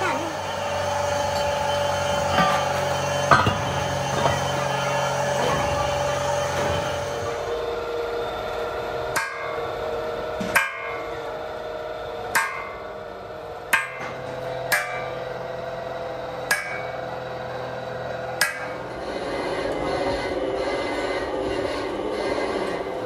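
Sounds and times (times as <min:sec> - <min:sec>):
steady machine hum: 0:00.0 - 0:23.0
hammer striking metal: 0:01.2 - 0:04.6, 0:09.1 - 0:09.7, 0:10.4 - 0:11.1, 0:12.3 - 0:12.9, 0:13.7 - 0:15.4, 0:16.4 - 0:17.1, 0:18.4 - 0:18.9.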